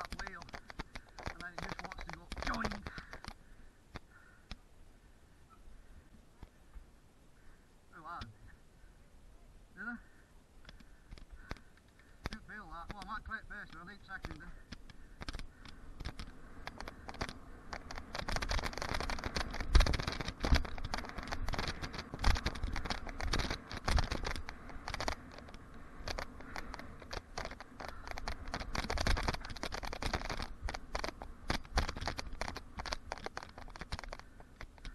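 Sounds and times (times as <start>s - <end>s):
bike rattles and clicks: 0.0s - 4.6s, 10.6s - 34.9s
bike tyres on dirt: 0.0s - 7.7s, 9.9s - 34.9s.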